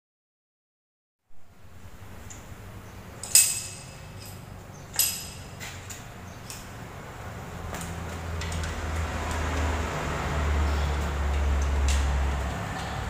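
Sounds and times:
metal tools clanking on engine: 3.2s - 6.7s.

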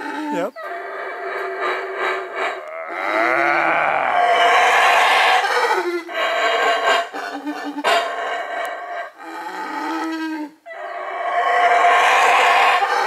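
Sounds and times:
howler monkey howling: 0.0s - 13.0s.

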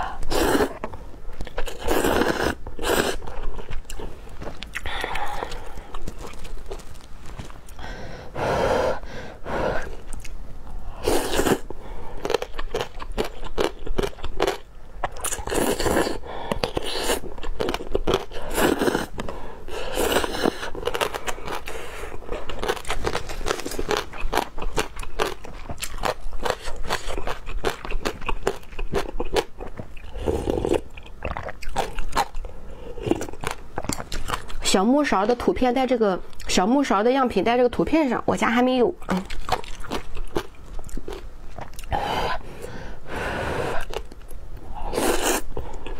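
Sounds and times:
person slurping noodles: 0.0s - 0.8s, 1.7s - 3.2s, 11.0s - 12.4s, 18.3s - 19.1s, 30.1s - 30.8s, 44.8s - 45.5s
chewing and crunching: 0.3s - 7.8s, 11.2s - 34.8s, 39.0s - 42.0s, 43.8s - 45.9s.

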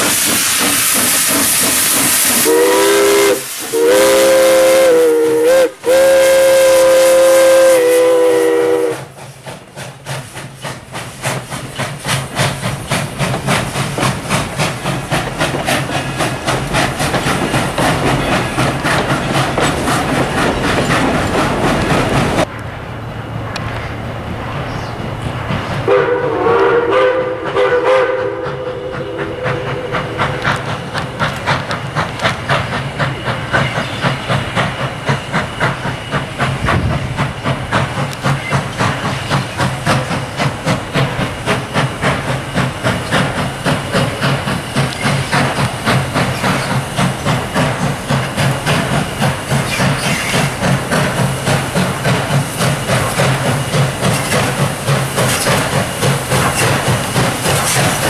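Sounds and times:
steam locomotive whistle: 0.0s - 9.3s, 25.8s - 30.6s
locomotive exhaust chuffing: 25.4s - 58.0s.

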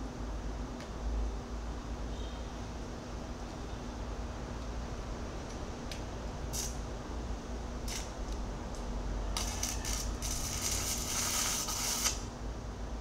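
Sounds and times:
electric arc welding crackle: 6.5s - 6.8s, 7.8s - 8.4s, 9.3s - 12.4s.

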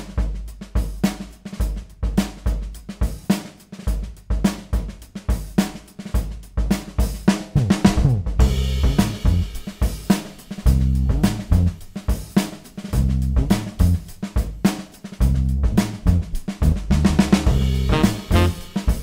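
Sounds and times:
drum kit groove: 0.0s - 19.0s.

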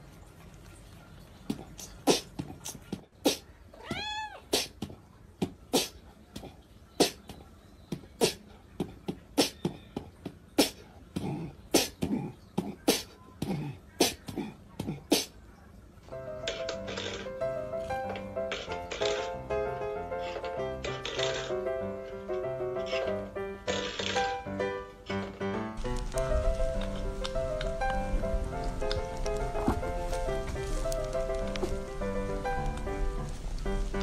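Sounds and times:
cat meowing: 3.7s - 4.5s.

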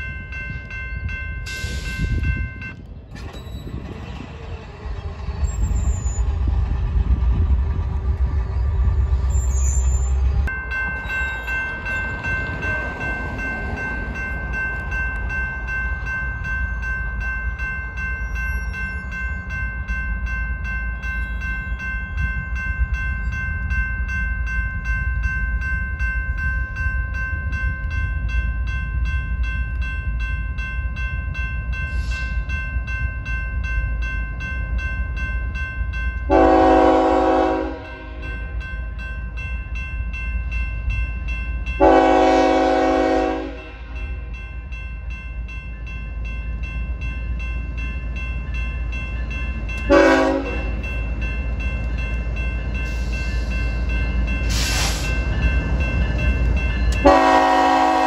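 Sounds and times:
high train whine: 0.0s - 58.0s
train rumbling past: 0.0s - 58.0s
train horn blast: 36.3s - 38.2s, 41.8s - 43.8s, 49.9s - 50.7s, 57.0s - 58.0s.

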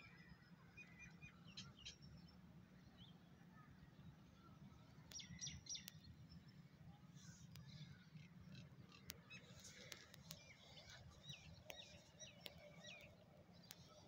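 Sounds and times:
faint ticks: 5.0s - 6.1s, 7.3s - 14.0s.

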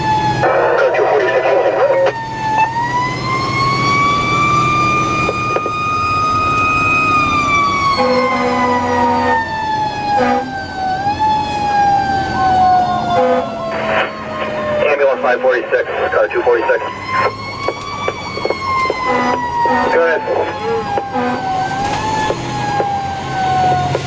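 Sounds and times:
fire truck horn blasts: 7.8s - 9.5s, 10.1s - 10.6s, 13.0s - 14.3s, 19.0s - 21.7s.

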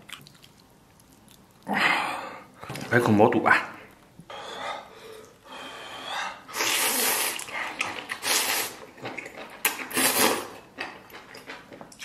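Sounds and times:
person slurping noodles: 6.0s - 8.9s, 9.8s - 10.6s.

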